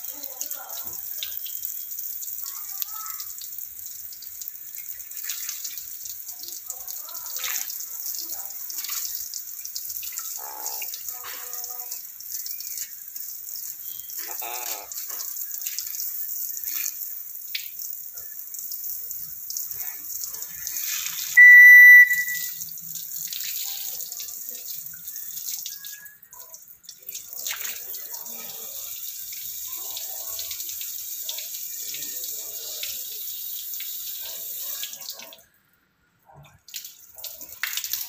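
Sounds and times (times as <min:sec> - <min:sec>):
shrill bird whistle: 0:21.4 - 0:22.5.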